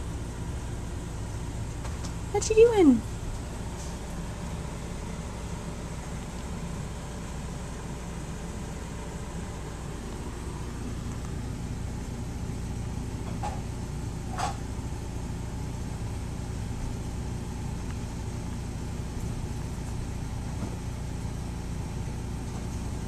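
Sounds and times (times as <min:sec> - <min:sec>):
low background hum: 0:00.0 - 0:23.0.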